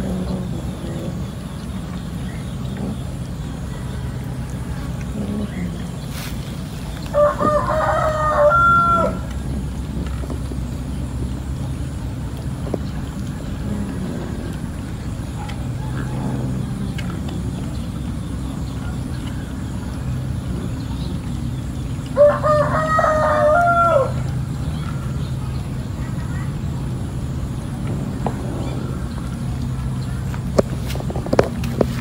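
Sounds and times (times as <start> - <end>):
low background hum: 0.0 - 32.0
rooster crowing: 7.1 - 9.3, 15.7 - 17.0, 22.1 - 24.8.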